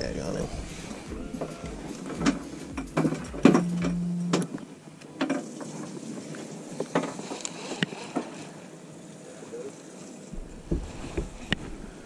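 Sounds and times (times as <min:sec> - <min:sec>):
low hum: 0:00.0 - 0:04.7
knocks and clicks of gear: 0:01.1 - 0:04.6.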